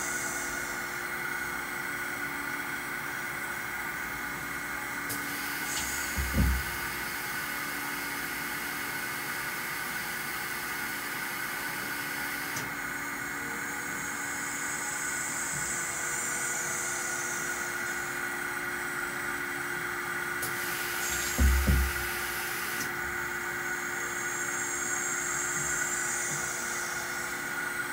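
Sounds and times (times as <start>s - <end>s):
grinder machine humming: 0.0s - 8.6s, 12.6s - 27.9s
hiss: 5.1s - 7.2s, 20.4s - 22.9s
low thud: 21.4s - 22.0s.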